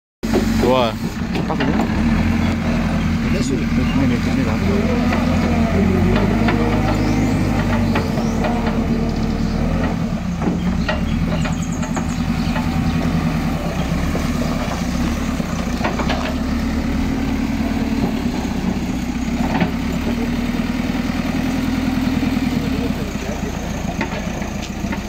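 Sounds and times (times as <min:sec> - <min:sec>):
backhoe diesel engine running: 0:00.2 - 0:25.0.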